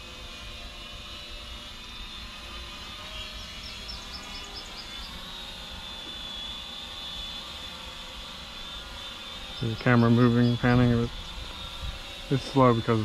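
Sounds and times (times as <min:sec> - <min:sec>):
drone propellers whining: 0:00.0 - 0:13.0
bird chirping: 0:03.5 - 0:05.2, 0:09.6 - 0:10.8
wind rumble on microphone: 0:10.6 - 0:12.1.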